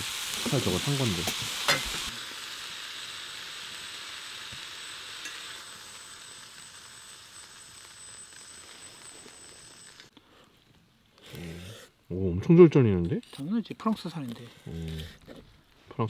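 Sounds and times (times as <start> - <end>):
meat sizzling in a pan: 0.0 - 10.1.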